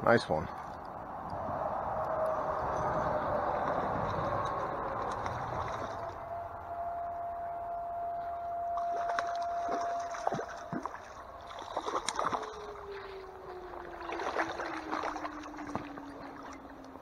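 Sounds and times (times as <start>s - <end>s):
faint steady whine: 0.0s - 17.0s
fish splashing in water: 2.4s - 6.6s, 8.8s - 17.0s.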